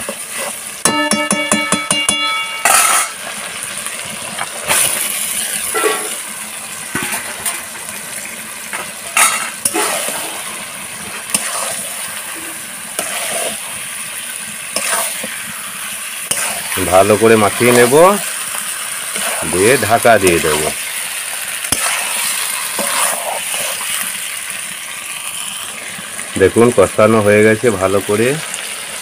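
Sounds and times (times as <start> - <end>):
metal spatula scraping pan: 0.0 - 3.3, 5.5 - 6.2, 9.1 - 13.8, 14.7 - 15.6, 16.2 - 17.9, 19.0 - 20.7, 21.6 - 24.0
chicken sizzling in oil: 0.0 - 29.0.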